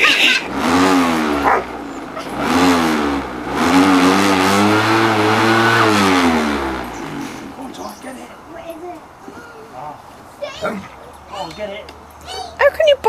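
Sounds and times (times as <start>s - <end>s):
electric lawnmower motor whine: 0.0s - 8.1s.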